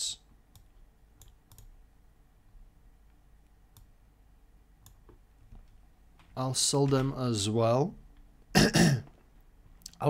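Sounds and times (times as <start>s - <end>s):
computer mouse and keyboard clicks: 0.5s - 1.8s, 4.8s - 7.2s.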